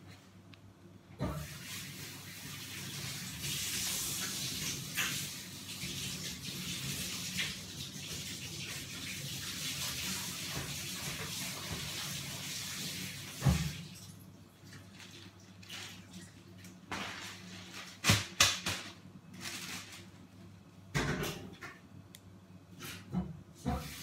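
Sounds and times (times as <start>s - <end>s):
water running from tap: 1.2s - 17.0s, 23.6s - 24.0s.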